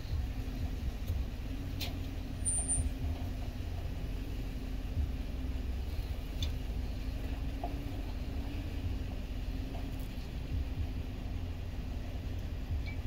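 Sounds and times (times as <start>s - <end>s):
car engine rumbling: 0.0s - 13.0s.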